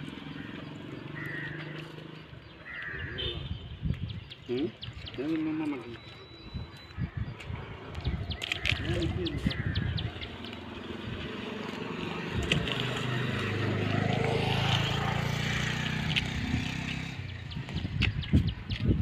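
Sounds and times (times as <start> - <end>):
engine hum: 7.5 - 19.0.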